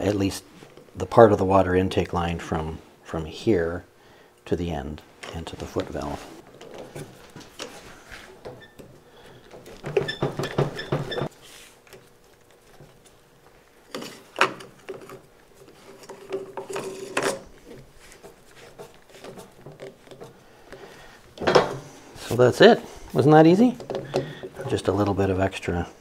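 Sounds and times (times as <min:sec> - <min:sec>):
pipe scraping and creaking in fitting: 0:06.6 - 0:11.9, 0:13.9 - 0:21.8.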